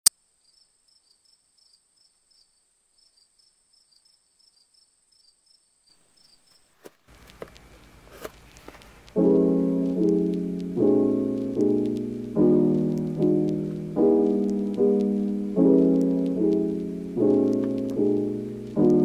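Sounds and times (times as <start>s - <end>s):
cricket chirps: 0.1s - 8.1s.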